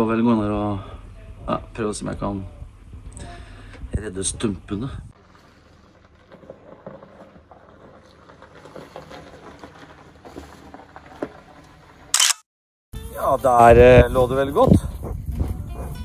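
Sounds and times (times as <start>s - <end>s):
tyres rolling over icy gravel: 5.2s - 12.1s.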